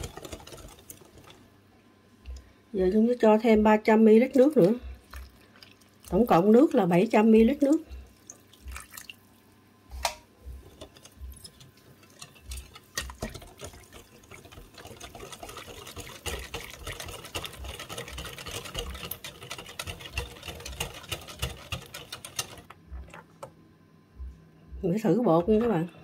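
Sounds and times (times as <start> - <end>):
whisk beating batter in bowl: 0.0 - 1.5, 10.5 - 22.7.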